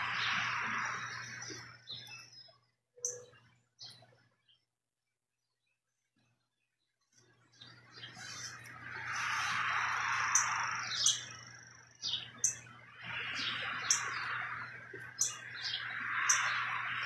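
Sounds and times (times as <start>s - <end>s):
small birds chirping: 0.0s - 17.0s
hissing wash: 8.7s - 11.4s, 12.9s - 17.0s.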